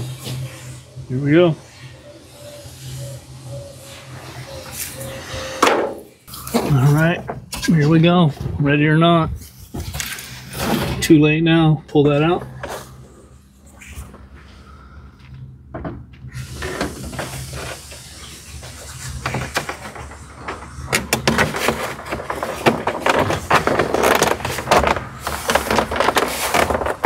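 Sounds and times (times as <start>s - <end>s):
plastic scraping and knocking: 19.1s - 27.0s.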